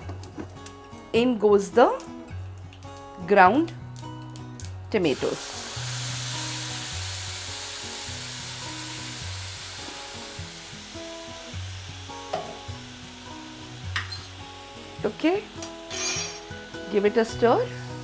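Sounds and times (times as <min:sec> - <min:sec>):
soft background music: 0:00.0 - 0:18.0
tomato paste sizzling in hot oil: 0:04.0 - 0:18.0.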